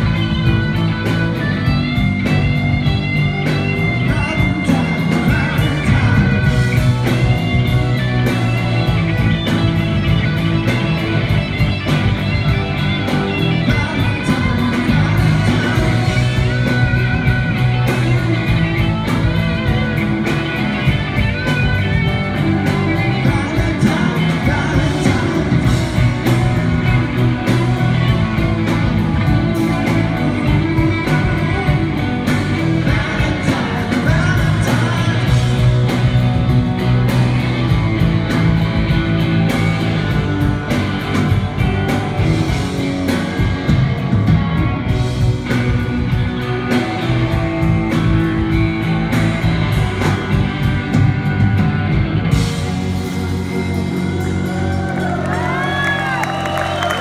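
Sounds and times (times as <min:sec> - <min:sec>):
live rock band playing: 0:00.0 - 0:57.0
man singing: 0:03.8 - 0:07.3, 0:13.4 - 0:16.9, 0:22.9 - 0:26.3, 0:30.4 - 0:36.1.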